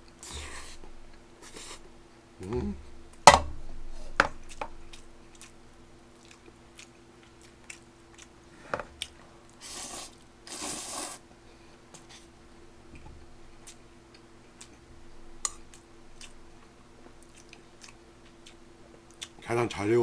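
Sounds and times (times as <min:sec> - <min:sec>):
light chewing: 0:04.4 - 0:10.3, 0:12.9 - 0:19.5
person slurping noodles: 0:09.6 - 0:11.2.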